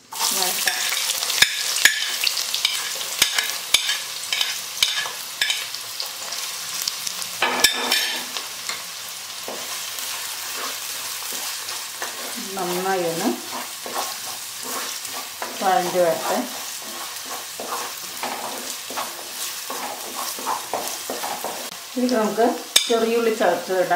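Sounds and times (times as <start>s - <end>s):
onions sizzling in oil: 0.0s - 23.9s
spoon knocking and scraping pot: 0.6s - 5.6s, 7.4s - 8.8s, 13.4s - 21.7s.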